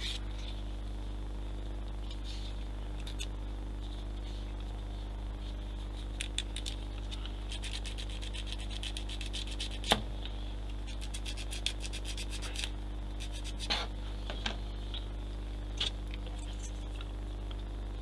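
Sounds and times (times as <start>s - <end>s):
steady low hum: 0.0s - 18.0s
sanding plastic parts: 7.5s - 9.9s, 10.9s - 13.7s.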